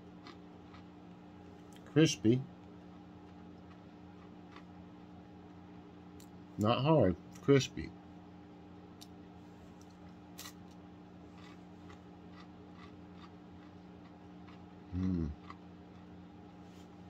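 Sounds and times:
pastry crunching while chewed: 0:00.0 - 0:01.9, 0:02.6 - 0:06.3, 0:09.7 - 0:16.2
steady low hum: 0:00.0 - 0:17.0
person humming mm: 0:14.9 - 0:15.5.

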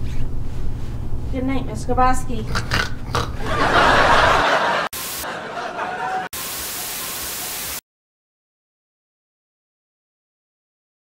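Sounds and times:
television static hiss: 0:03.6 - 0:07.8.

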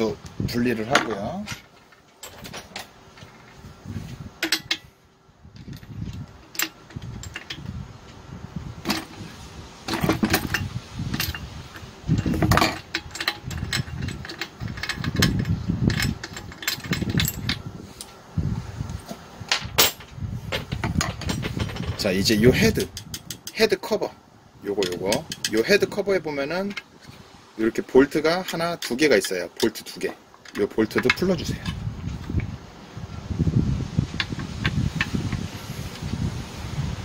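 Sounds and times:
wrench clicking against metal: 0:22.8 - 0:23.6, 0:24.8 - 0:25.6.

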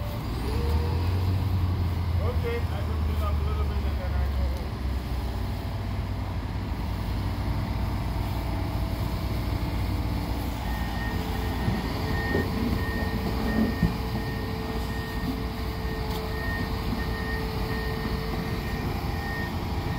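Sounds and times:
heavy machinery rumbling: 0:00.0 - 0:19.9
reversing alarm beeping: 0:10.4 - 0:19.9.

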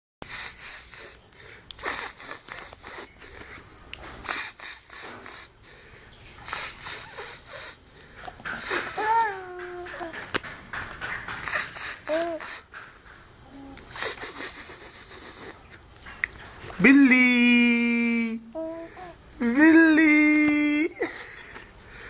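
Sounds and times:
person making hissing sounds: 0:00.2 - 0:10.1, 0:11.4 - 0:12.8, 0:13.4 - 0:15.8
baby cooing: 0:08.5 - 0:10.3, 0:11.8 - 0:12.7, 0:13.4 - 0:14.5, 0:18.5 - 0:19.2.

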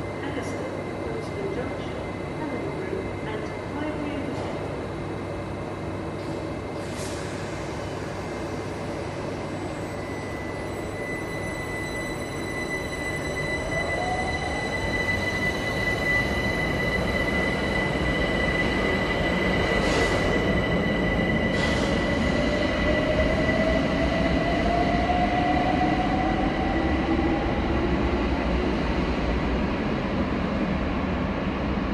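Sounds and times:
steady high tone: 0:09.7 - 0:19.8
train rumble: 0:12.3 - 0:31.9.

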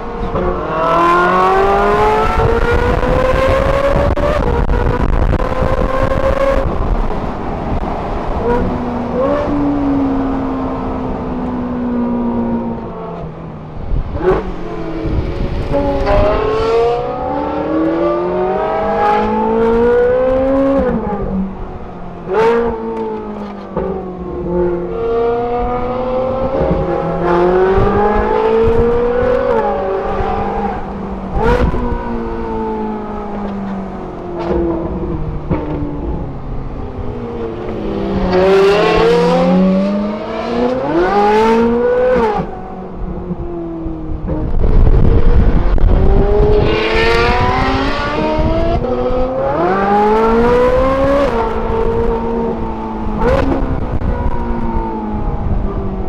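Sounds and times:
car engine revving: 0:22.2 - 0:43.4, 0:44.2 - 0:55.6.

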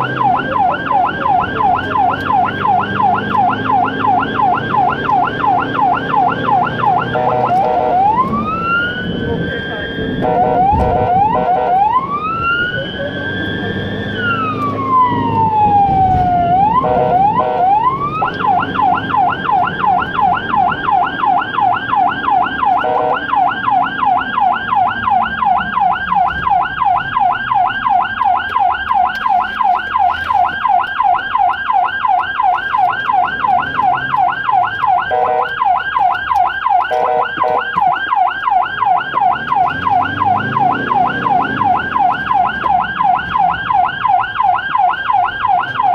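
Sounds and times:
ambulance siren: 0:00.0 - 0:45.9
short low horn blasts: 0:07.1 - 0:08.1, 0:22.8 - 0:23.2, 0:35.1 - 0:35.5.

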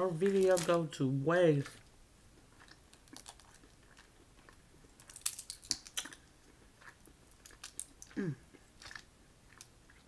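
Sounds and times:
crawfish shell cracking: 0:02.9 - 0:03.8, 0:05.0 - 0:06.2, 0:07.3 - 0:08.1.

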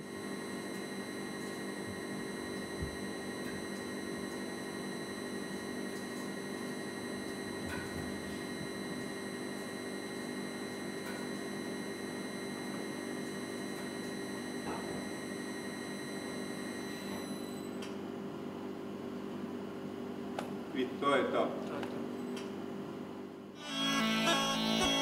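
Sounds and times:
electrical hum: 0:00.0 - 0:25.0
thin high whine: 0:23.6 - 0:25.0.

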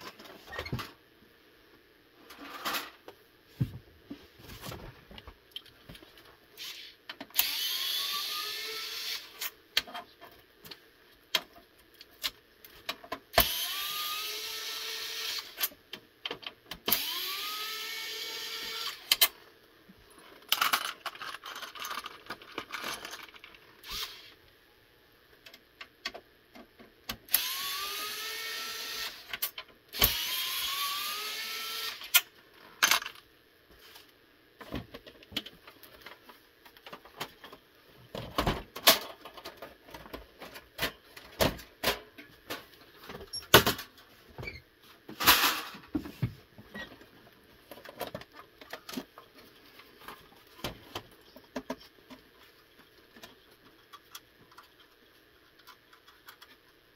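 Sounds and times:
electric screwdriver whining: 0:06.6 - 0:09.4, 0:13.4 - 0:15.6, 0:16.9 - 0:19.1, 0:23.8 - 0:24.3, 0:27.3 - 0:29.3, 0:30.0 - 0:32.2
metal parts clicking and knocking: 0:20.4 - 0:23.6.

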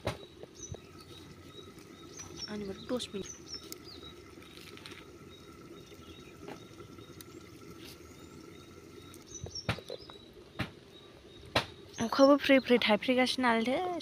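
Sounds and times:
steady low background hum: 0:00.0 - 0:14.0.

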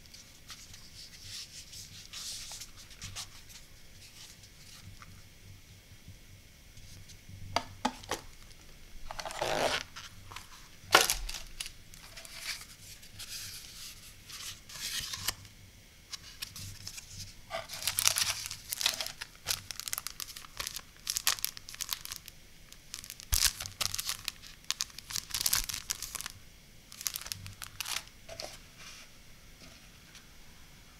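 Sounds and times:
plastic wrappers crinkling: 0:08.0 - 0:12.7, 0:16.2 - 0:28.5
paper and cardboard rustling: 0:09.1 - 0:15.4, 0:16.1 - 0:29.1.

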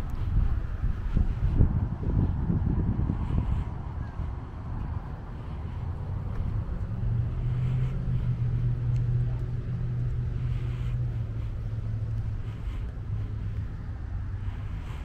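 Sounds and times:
car engine running: 0:05.4 - 0:15.0.

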